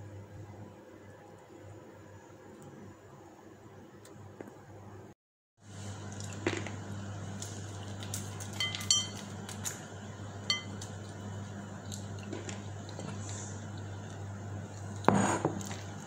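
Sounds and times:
steady low hum: 0.0 - 16.0
clinks on ceramic bowl: 8.6 - 9.2, 10.5 - 10.8.

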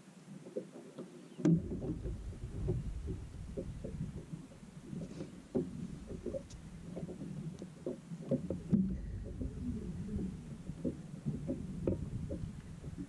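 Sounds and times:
knocks and bumps on boat deck: 1.4 - 13.0
heavy thump: 1.5 - 4.3.

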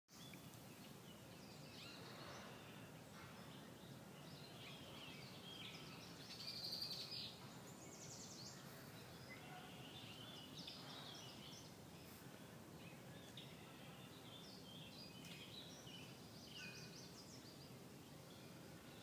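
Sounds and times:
low outdoor background noise: 0.1 - 19.0
birds chirping and singing: 0.2 - 19.0.

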